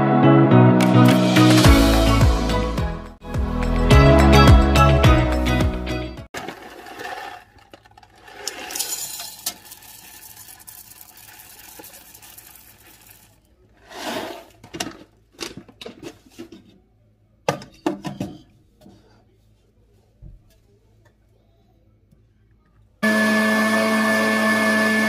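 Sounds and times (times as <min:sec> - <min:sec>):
coffee beans pouring into metal cup: 0:06.4 - 0:14.5.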